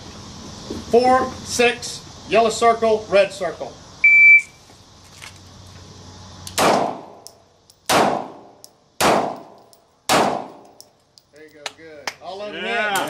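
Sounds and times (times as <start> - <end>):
pistol shots with echo: 6.6 - 7.2, 7.9 - 10.7.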